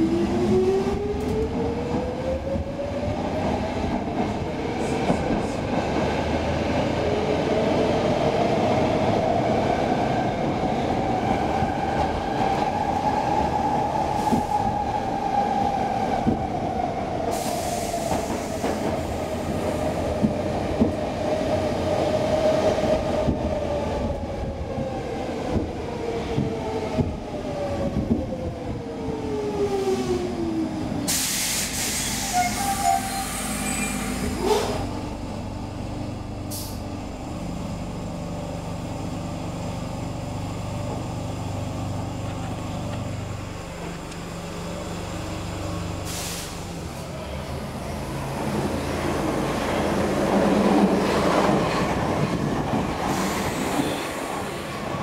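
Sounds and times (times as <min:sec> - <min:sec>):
subway motor whine: 0:00.0 - 0:55.0
wheels rumbling on track: 0:29.6 - 0:55.0.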